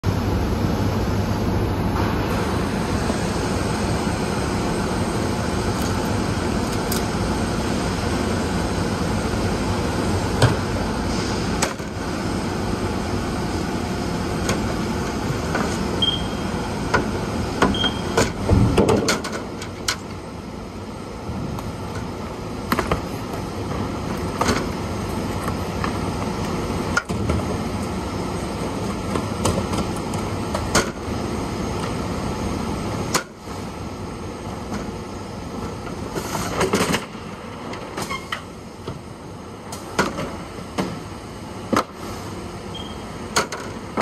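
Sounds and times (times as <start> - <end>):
conveyor machinery din: 0.0 - 44.0
short high beeps: 16.0 - 16.4, 42.7 - 43.0.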